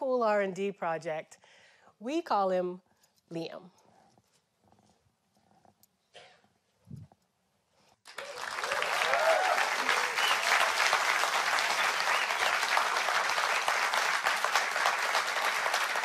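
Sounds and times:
audience applauding: 8.0s - 16.0s
cheers: 8.1s - 16.0s.

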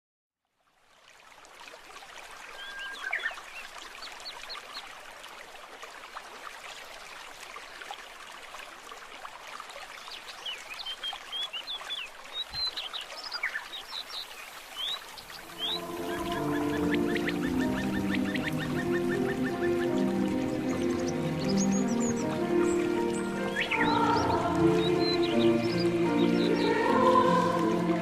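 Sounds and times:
water trickling: 0.5s - 28.0s
birds chirping: 10.5s - 28.0s.

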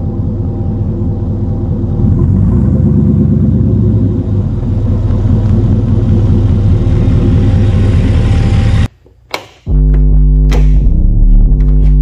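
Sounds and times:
car engine running loud: 0.0s - 8.9s.

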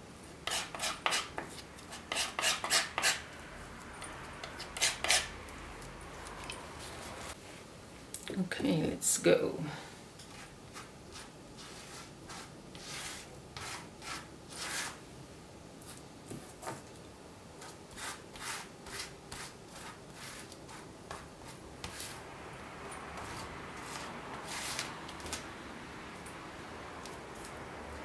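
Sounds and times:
paint brush scrubbing on paper: 10.7s - 15.0s.

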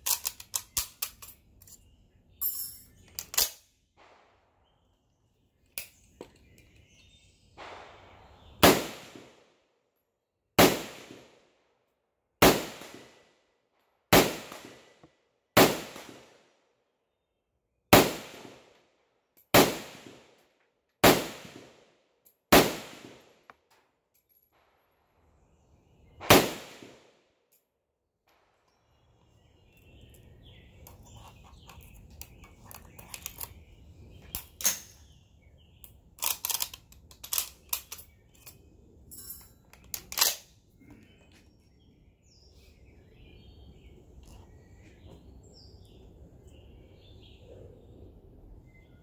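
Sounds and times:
rifle action metallic clack: 0.0s - 1.8s, 2.4s - 3.6s, 36.2s - 38.6s, 39.2s - 40.5s
rifle shots echoing: 7.6s - 9.5s, 10.6s - 11.4s, 12.4s - 13.2s, 14.1s - 15.0s, 15.6s - 16.5s, 17.9s - 18.8s, 19.5s - 20.3s, 21.0s - 21.9s, 22.5s - 23.4s, 26.2s - 27.2s.

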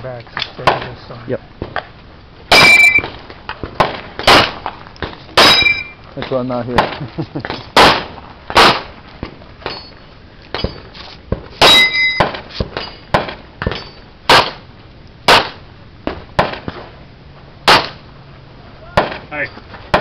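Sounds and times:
metallic ring of steel targets: 2.5s - 3.1s, 5.4s - 6.0s, 9.6s - 10.9s, 11.6s - 14.1s
pistol shots: 2.5s - 4.7s, 5.4s - 6.0s, 7.8s - 8.9s, 11.6s - 14.6s, 15.3s - 15.6s, 17.7s - 18.0s.

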